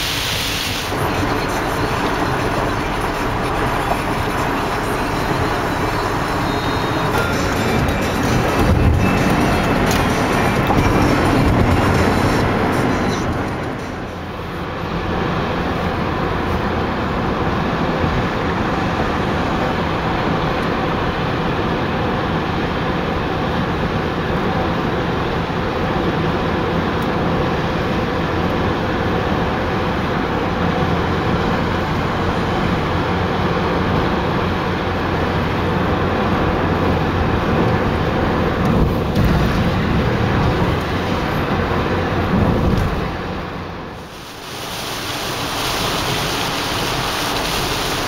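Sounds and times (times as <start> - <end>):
tyres on pavement: 0.0 - 14.8
car engine hum: 0.0 - 48.0.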